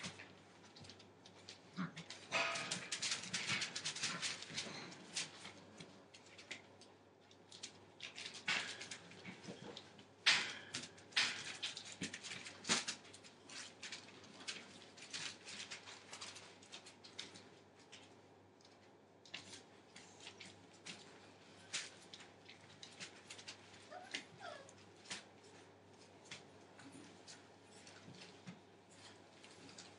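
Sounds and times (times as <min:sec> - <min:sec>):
puppies scratching on newspaper: 0:00.0 - 0:29.9
paper crackle: 0:02.1 - 0:09.8, 0:10.6 - 0:18.1.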